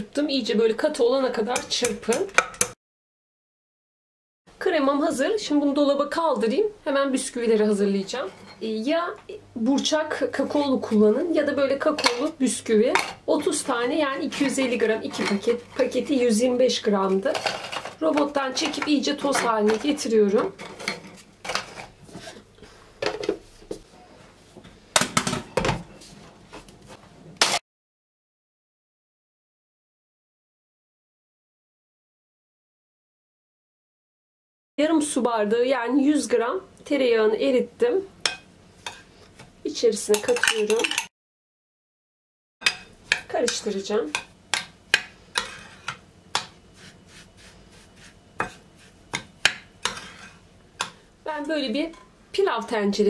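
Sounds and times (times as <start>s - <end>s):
spoon scraping through crumbs: 45.3s - 49.0s, 49.8s - 50.9s.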